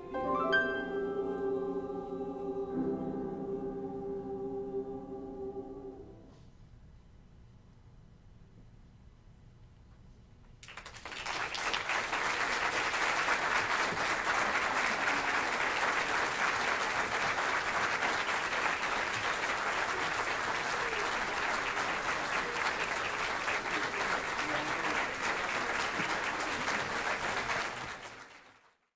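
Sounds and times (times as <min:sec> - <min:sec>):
audience applause: 0:10.6 - 0:28.9.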